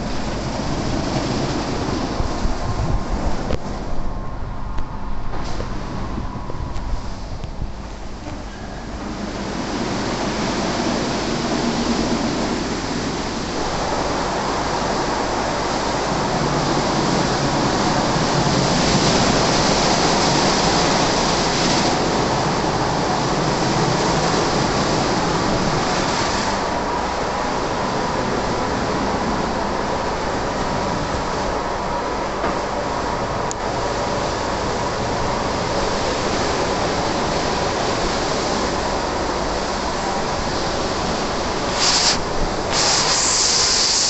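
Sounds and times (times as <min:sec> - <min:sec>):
car wash brushes scrubbing: 0:41.5 - 0:44.0
water spray hissing: 0:41.6 - 0:44.0.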